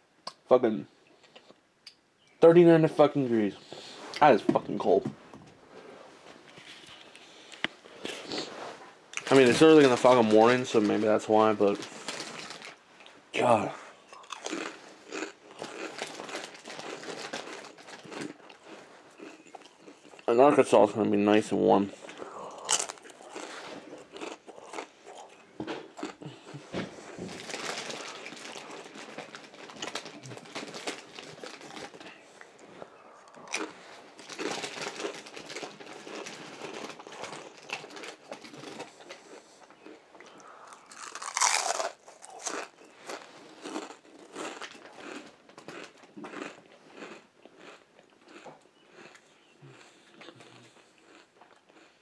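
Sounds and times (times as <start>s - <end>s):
crunchy chip chewing: 14.1s - 20.3s, 21.9s - 26.6s, 27.4s - 52.0s.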